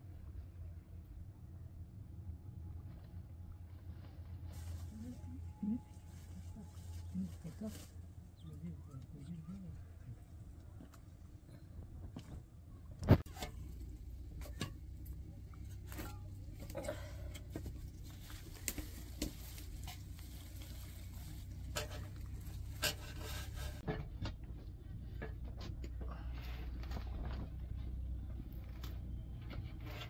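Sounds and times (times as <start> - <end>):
low steady hum: 0.0 - 30.0
leaves rustling: 3.9 - 8.9, 17.7 - 23.8.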